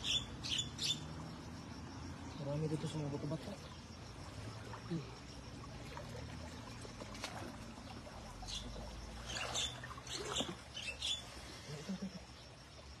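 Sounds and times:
stream trickling over rocks: 0.0 - 13.0
hands splashing in water: 5.8 - 7.8.

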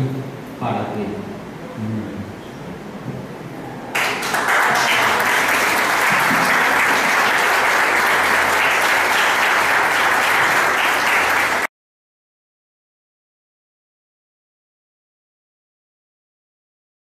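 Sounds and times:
audience applauding: 3.9 - 11.7.

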